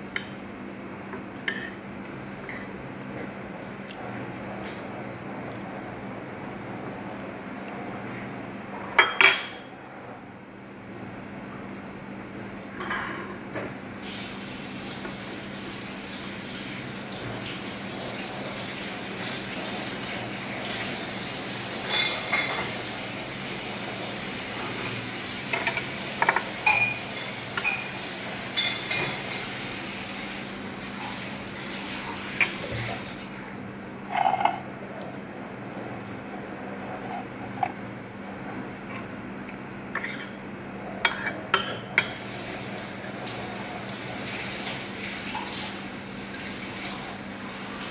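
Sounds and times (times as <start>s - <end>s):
water running from tap: 14.0s - 33.4s, 42.0s - 47.9s.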